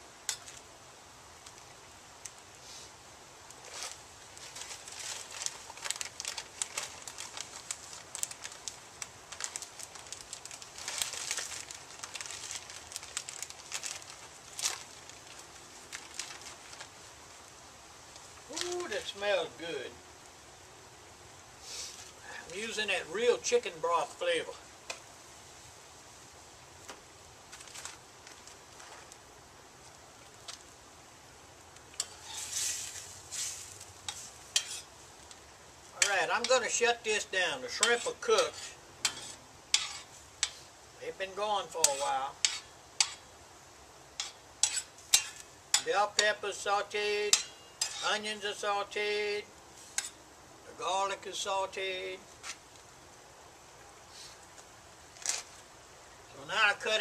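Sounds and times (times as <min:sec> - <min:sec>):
liquid boiling and bubbling in a pan: 0:00.0 - 0:18.5, 0:24.8 - 0:36.8, 0:37.7 - 0:41.0, 0:41.9 - 0:46.4
packet crinkling: 0:03.6 - 0:17.0, 0:27.5 - 0:29.2.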